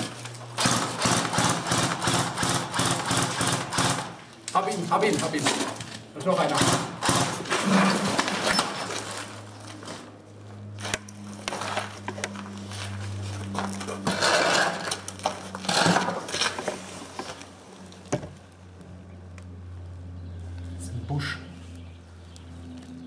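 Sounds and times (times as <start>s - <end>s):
airsoft rifle shots: 0.6s - 4.2s, 6.4s - 7.5s.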